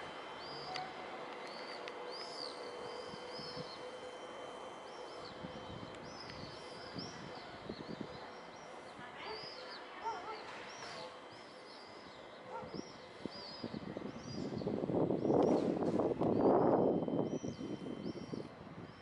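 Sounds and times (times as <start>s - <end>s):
steady background hum: 0.0s - 19.0s
small birds chirping: 1.4s - 15.6s.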